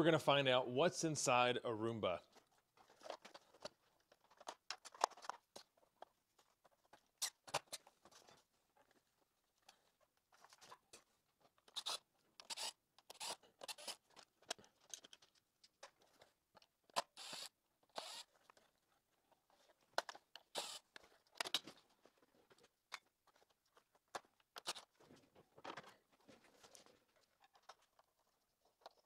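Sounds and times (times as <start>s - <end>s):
plastic parts scraping and clicking: 2.3s - 29.0s.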